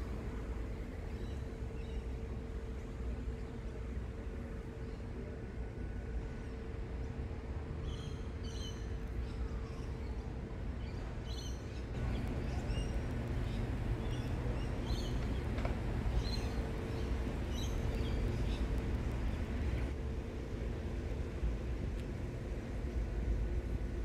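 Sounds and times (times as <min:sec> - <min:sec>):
low background rumble: 0:00.0 - 0:24.0
birds chirping: 0:11.4 - 0:19.9.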